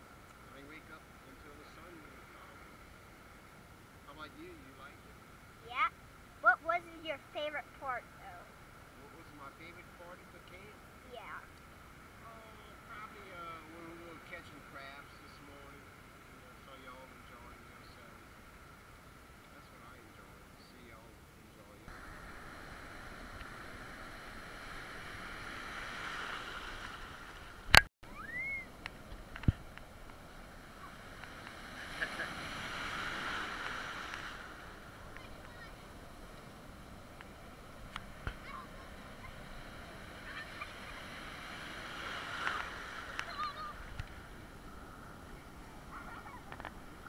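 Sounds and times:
surf breaking and washing: 0:00.0 - 0:03.4, 0:12.0 - 0:16.1, 0:21.9 - 0:47.0.

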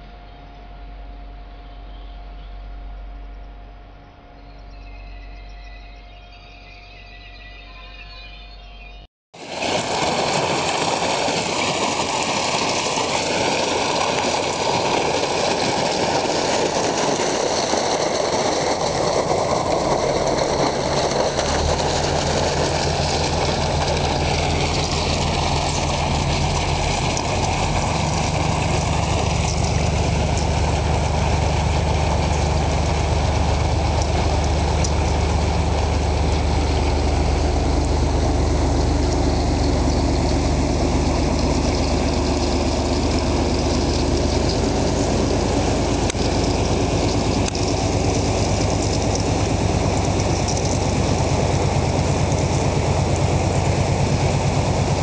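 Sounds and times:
boat diesel engine running: 0:09.4 - 0:55.0
churning water: 0:09.4 - 0:55.0
low engine hum: 0:09.5 - 0:55.0.

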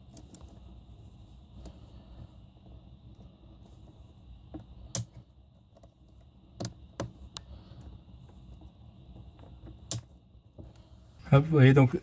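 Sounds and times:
wire connectors clicking: 0:04.5 - 0:07.5, 0:09.3 - 0:10.2.

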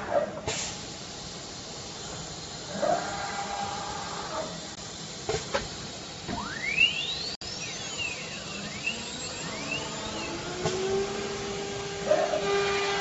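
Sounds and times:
router motor whine rising: 0:06.4 - 0:13.0.

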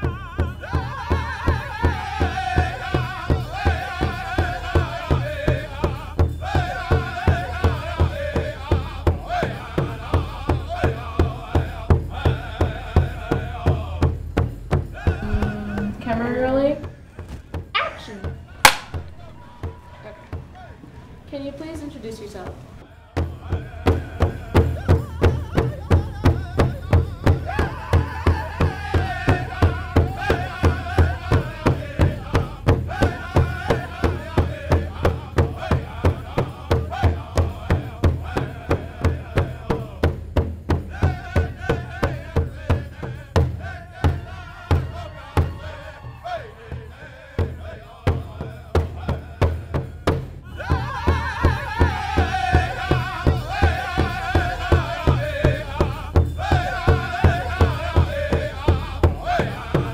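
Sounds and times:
drum beating fast: 0:00.0 - 0:20.5, 0:23.2 - 0:59.9
person singing: 0:15.0 - 0:16.9.

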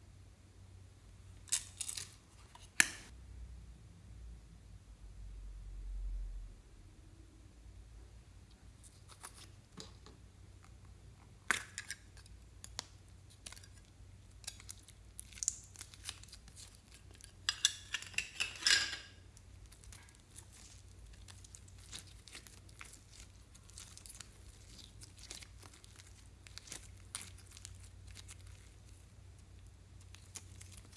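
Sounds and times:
slime tearing and crackling: 0:12.7 - 0:17.3, 0:19.3 - 0:30.9.

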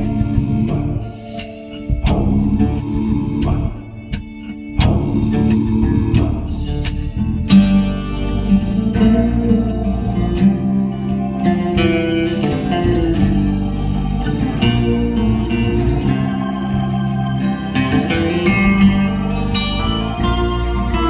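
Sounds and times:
guitar plucked and strummed: 0:00.0 - 0:21.0
steady bass line: 0:00.0 - 0:21.0.

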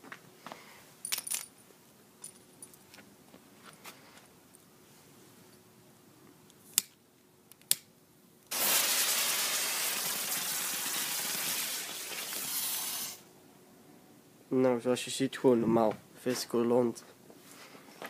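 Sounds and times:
fuse burning with a hiss: 0:08.5 - 0:13.3.

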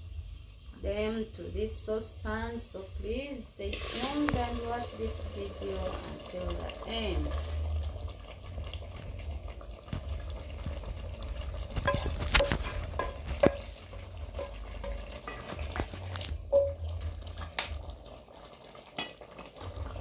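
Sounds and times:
food sizzling in a pot: 0:00.0 - 0:20.0
metal ladle scraping a saucepan: 0:11.7 - 0:16.9.

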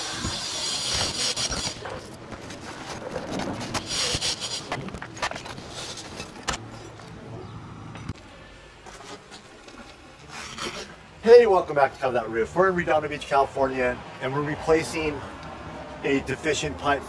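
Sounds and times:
shingles scraping: 0:00.0 - 0:07.2.

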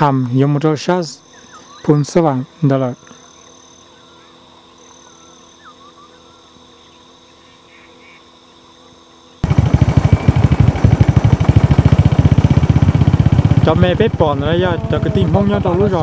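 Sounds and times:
faint insect chirps: 0:00.0 - 0:09.4
small engine pulsing: 0:01.2 - 0:16.0.

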